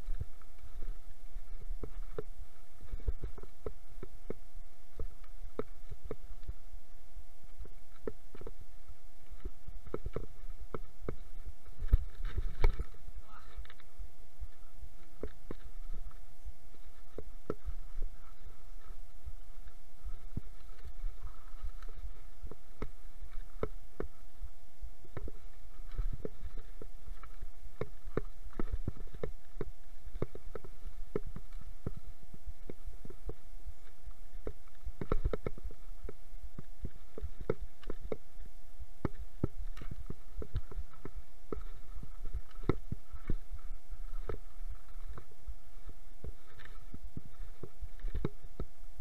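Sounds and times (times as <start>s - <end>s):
bike rumbling on dirt trail: 0.0s - 49.0s
faint steady hum: 0.0s - 49.0s.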